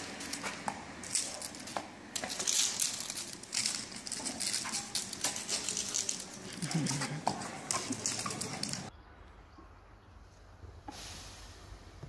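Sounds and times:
dog paws scraping on pavement: 0.0s - 8.9s.

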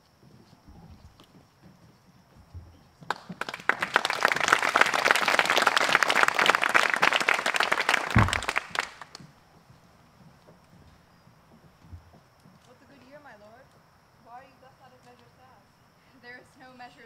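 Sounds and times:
audience applauding: 3.1s - 9.2s
dull thump: 8.1s - 8.7s.

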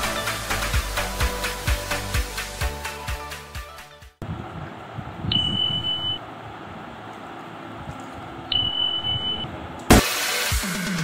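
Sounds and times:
high electronic beeps: 5.3s - 6.2s, 8.5s - 9.5s.

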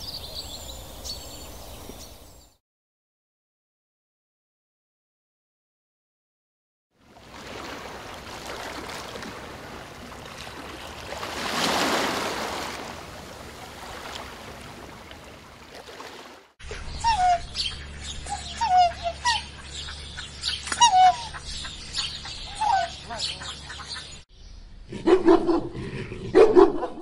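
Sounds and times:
geese splashing in water: 7.0s - 17.3s
geese honking: 16.7s - 24.2s.

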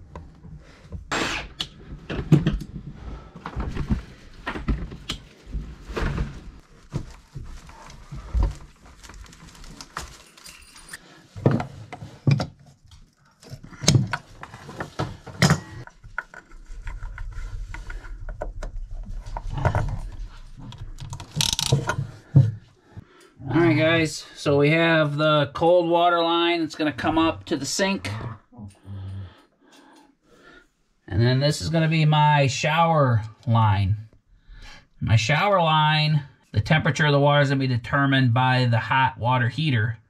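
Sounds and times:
knocks and rattles of plumbing fittings: 0.0s - 23.2s.

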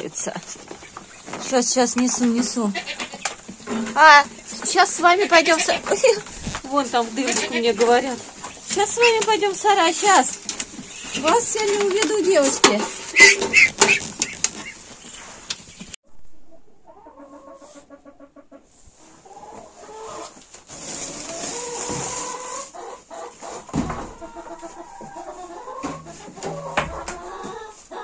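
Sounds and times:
rustling: 0.0s - 16.0s, 18.6s - 22.6s
hens clucking: 0.0s - 28.0s.

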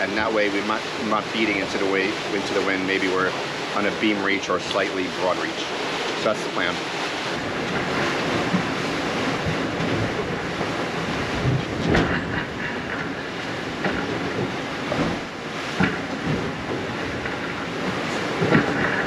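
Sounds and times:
hulls knocking on waves: 0.0s - 19.0s
water rushing past hull: 0.0s - 19.0s
wind buffeting microphone: 5.0s - 19.0s.

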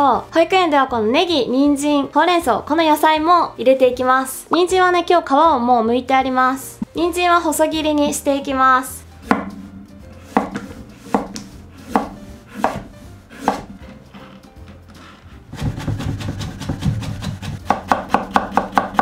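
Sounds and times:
knife slicing carrot on wooden board: 9.2s - 19.0s
rapid knife chops: 10.3s - 14.0s, 15.5s - 19.0s.

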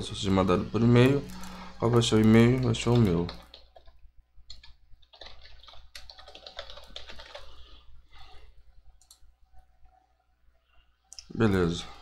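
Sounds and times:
computer keyboard typing: 1.3s - 7.8s, 9.0s - 9.2s.

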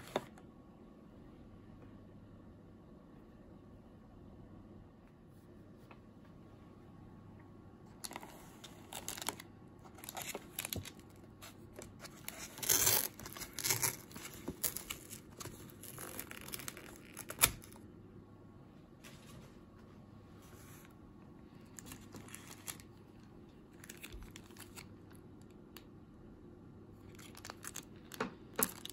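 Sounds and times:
foil paper lid crinkling and tearing: 8.8s - 17.8s.

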